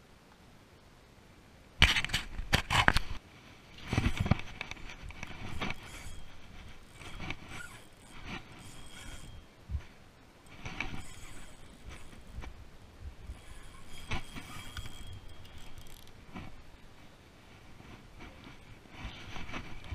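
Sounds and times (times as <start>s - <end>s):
jacket rubbing on microphone: 3.8s - 9.4s, 10.5s - 12.6s, 13.3s - 16.6s
spinning reel cranking: 4.0s - 9.5s, 10.5s - 12.4s, 13.3s - 16.2s.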